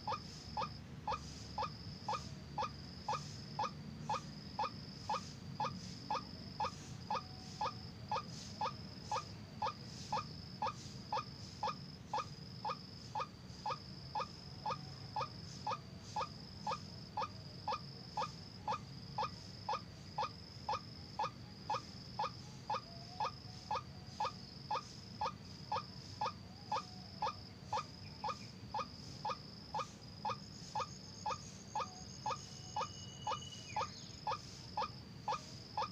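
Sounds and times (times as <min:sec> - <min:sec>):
faint high-pitched whine: 0:00.0 - 0:35.9
waterhen calling: 0:20.2 - 0:35.9.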